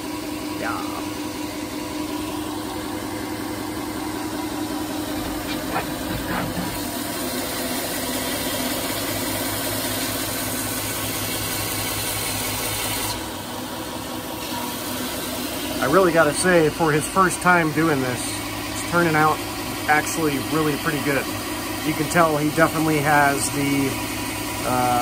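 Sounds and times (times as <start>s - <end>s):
belt grinder sanding wood: 4.5s - 8.0s.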